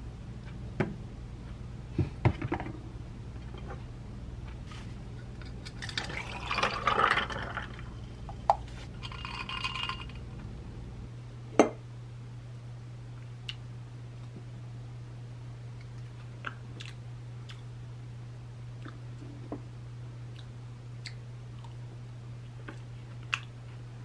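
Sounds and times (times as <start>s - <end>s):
low steady hum: 0.0s - 24.0s
coffee pouring over ice: 5.8s - 7.9s, 9.0s - 10.2s.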